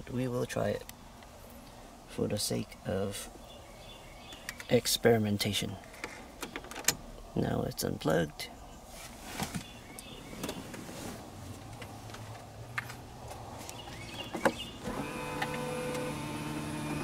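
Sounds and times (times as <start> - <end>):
power seat motor humming: 14.5 - 17.0.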